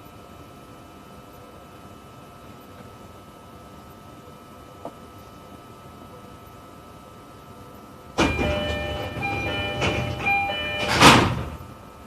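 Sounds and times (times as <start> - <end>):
door chime of stepped tones: 8.2 - 11.6
train doors shutting with thump: 8.2 - 11.8.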